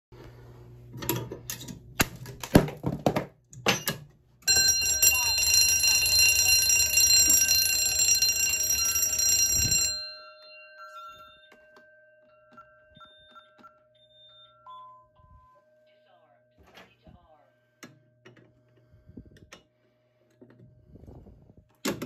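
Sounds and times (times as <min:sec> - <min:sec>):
fire alarm bell ringing: 0:03.7 - 0:16.6.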